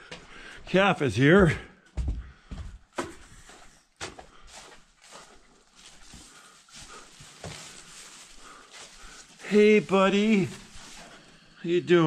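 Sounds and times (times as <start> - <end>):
rustling in straw: 4.5 - 12.0.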